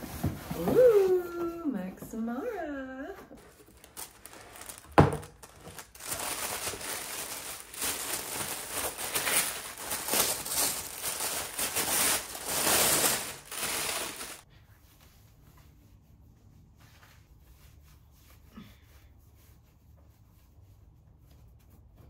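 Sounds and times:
packaging crinkling: 3.4s - 14.4s.

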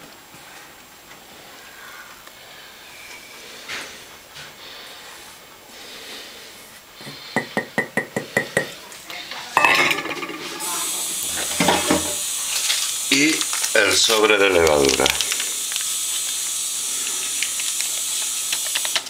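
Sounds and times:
rustling hiss: 0.0s - 19.0s.

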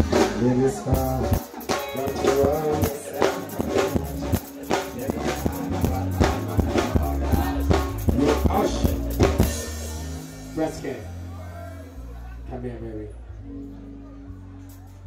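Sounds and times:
dancehall music: 0.0s - 15.0s.

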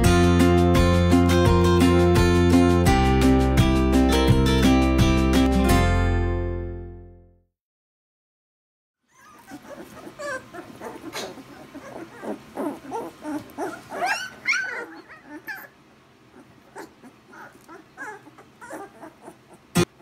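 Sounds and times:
puppies whining and yipping: 9.0s - 20.0s.

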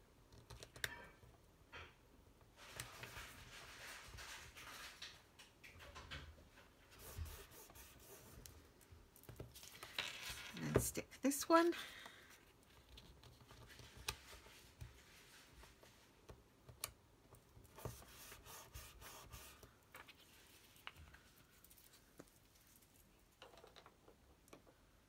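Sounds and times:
paper rubbed and pressed: 6.9s - 8.5s, 17.8s - 19.7s.

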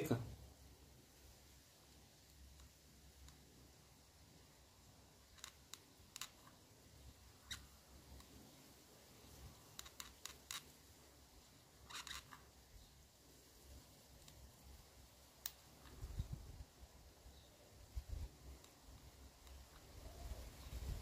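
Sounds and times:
faint small plastic clicks: 2.3s - 3.5s, 5.2s - 6.7s, 7.4s - 8.6s, 9.6s - 10.8s, 14.2s - 14.7s, 15.4s - 16.3s, 18.1s - 20.8s.

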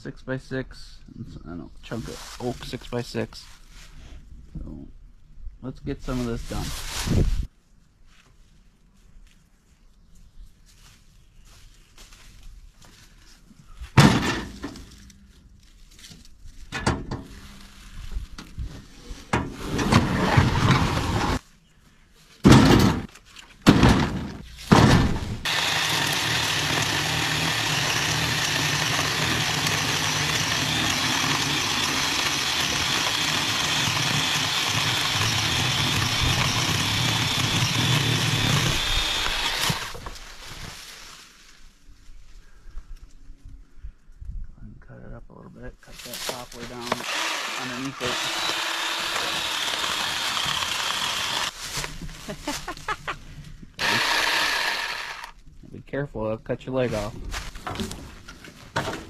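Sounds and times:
heavy wooden thunks: 13.9s - 14.9s, 22.4s - 25.5s
chainsaw cutting wooden planks: 19.5s - 21.4s, 23.7s - 40.4s, 46.3s - 52.3s, 53.8s - 55.4s.

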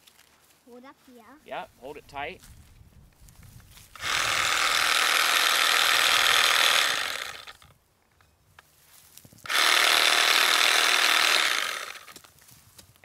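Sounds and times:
mini chainsaw whirring: 3.9s - 7.7s, 9.4s - 12.3s.

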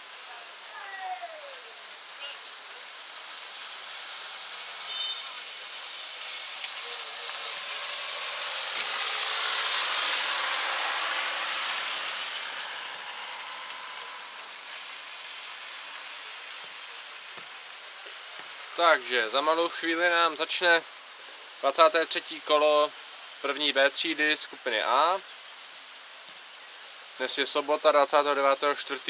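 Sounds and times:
rain hissing: 0.0s - 29.0s
vehicle passing: 3.6s - 16.6s.

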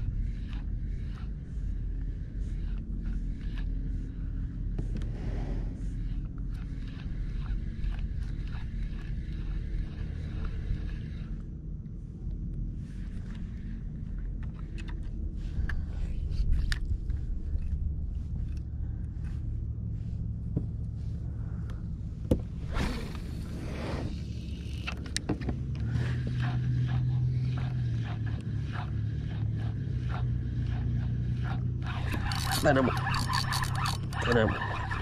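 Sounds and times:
steady low hum: 0.0s - 35.0s
fishing reel clicks and knocks: 31.4s - 35.0s.

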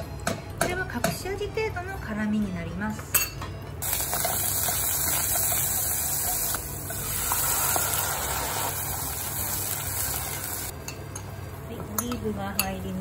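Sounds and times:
garlic sizzling in hot oil: 3.8s - 10.8s.

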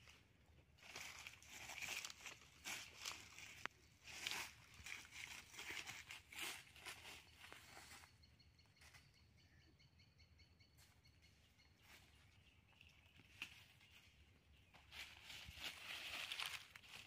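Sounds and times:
dry leaves rustling: 0.8s - 8.1s, 13.1s - 17.0s.

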